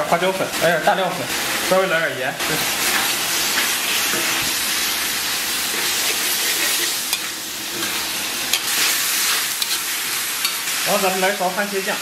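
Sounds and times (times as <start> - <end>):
pork sizzling in oil: 0.0 - 12.0
spatula stirring in wok: 2.8 - 10.9.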